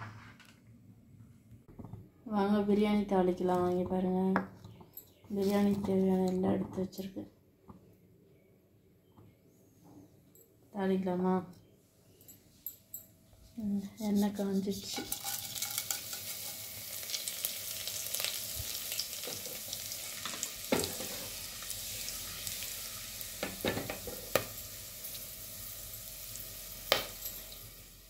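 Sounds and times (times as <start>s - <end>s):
spices sizzling in hot oil: 14.0s - 28.0s.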